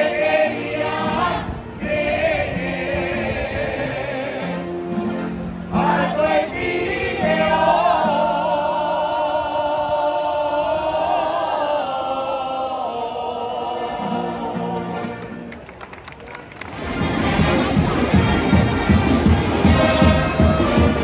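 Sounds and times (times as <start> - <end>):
group singing: 0.0 - 5.0, 5.7 - 15.2, 19.2 - 21.0
accordion chords: 0.0 - 9.4, 16.8 - 21.0
guitars: 0.0 - 10.6, 13.4 - 15.7, 16.7 - 21.0.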